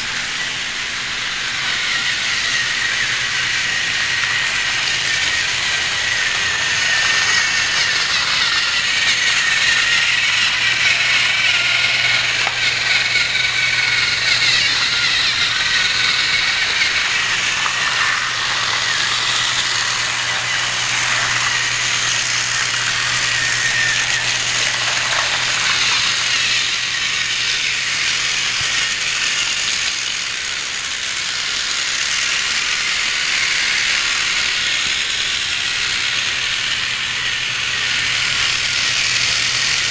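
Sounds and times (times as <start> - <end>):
toy train motors whirring: 0.0 - 39.9
plastic wheels rattling: 4.5 - 30.2.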